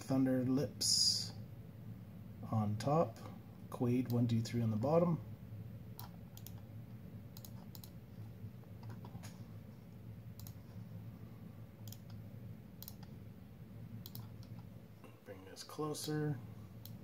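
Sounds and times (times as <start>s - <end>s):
steady low hum: 0.0s - 17.0s
computer mouse buttons clicking: 6.0s - 6.6s, 7.4s - 8.0s, 10.4s - 10.6s, 11.8s - 12.2s, 12.8s - 13.2s, 14.0s - 14.7s.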